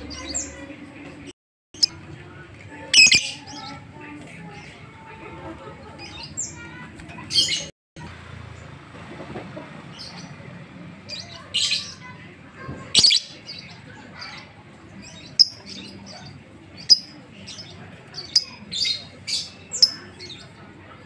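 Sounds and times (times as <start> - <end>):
lovebird chirping: 3.0 - 3.3.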